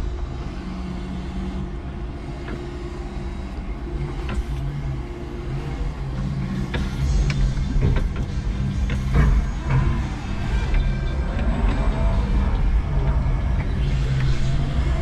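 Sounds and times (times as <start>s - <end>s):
electric forklift motor whining: 0.0s - 15.0s.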